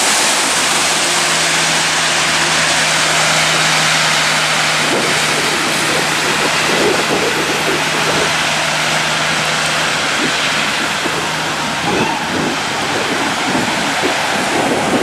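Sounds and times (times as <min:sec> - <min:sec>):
diesel engine hum: 0:00.0 - 0:15.0
tyre hiss on wet road: 0:00.0 - 0:15.0
van driving past: 0:00.0 - 0:15.0.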